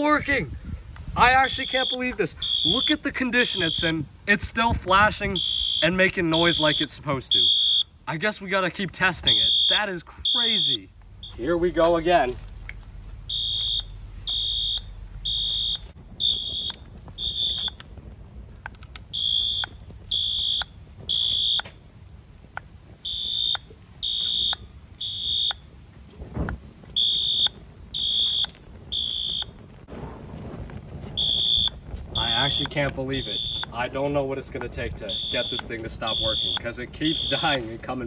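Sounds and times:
fire alarm horn blasts: 1.3s - 4.1s, 5.0s - 8.0s, 9.2s - 11.5s, 13.3s - 17.8s, 19.1s - 21.7s, 23.0s - 25.6s, 26.9s - 29.6s, 31.1s - 33.8s, 34.9s - 37.7s.

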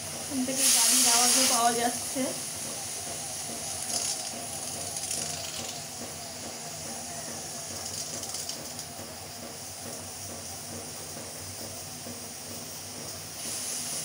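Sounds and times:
pressure cooker hissing steam: 0.0s - 14.0s
pressure cooker whistles: 0.8s - 9.5s.

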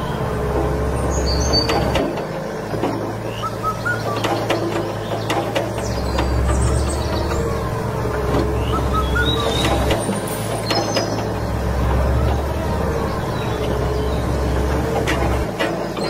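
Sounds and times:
excavator engine rumbling: 0.0s - 16.0s
faint bird chirps: 8.6s - 10.0s.

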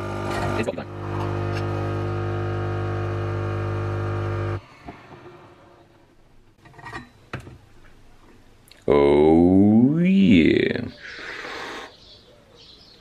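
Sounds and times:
coffee machine pump humming: 0.0s - 4.6s.

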